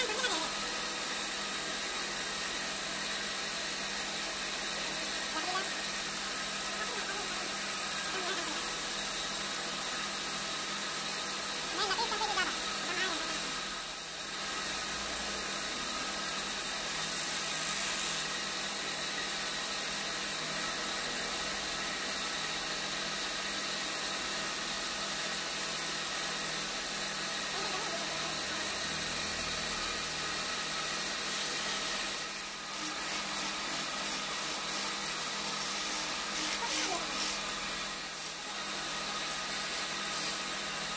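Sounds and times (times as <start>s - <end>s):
wood lathe running: 30.6s - 40.9s.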